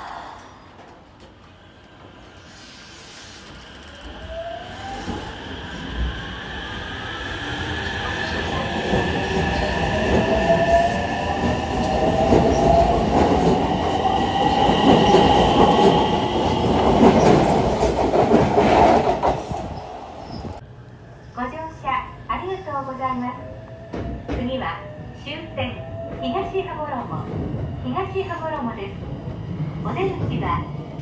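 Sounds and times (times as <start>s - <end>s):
train wheels rumbling on rails: 0.7s - 20.6s.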